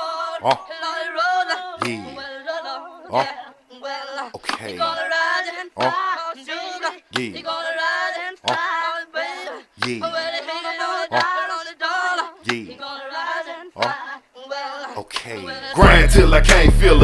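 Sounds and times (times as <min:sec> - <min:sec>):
sung vocals: 0:00.0 - 0:17.0
deep bass kicks falling in pitch: 0:15.8 - 0:17.0.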